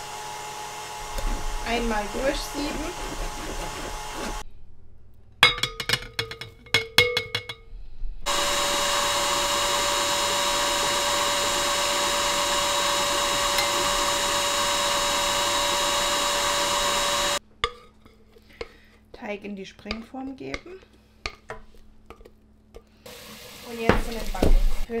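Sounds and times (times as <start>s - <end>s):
stand mixer motor whining: 0.0s - 4.4s, 8.3s - 17.4s
knocks and clatters: 5.4s - 7.6s.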